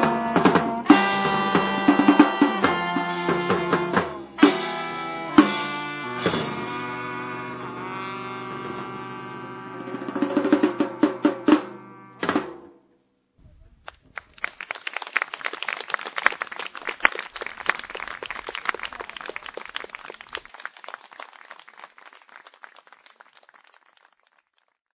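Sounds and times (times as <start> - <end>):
jazz music: 0.0 - 12.6
audience applause: 13.9 - 24.9.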